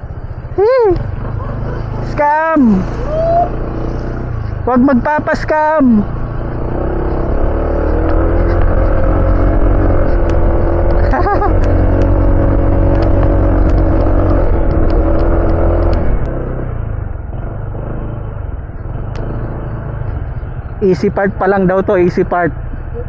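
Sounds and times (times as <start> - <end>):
scooter engine running: 0.0 - 16.6.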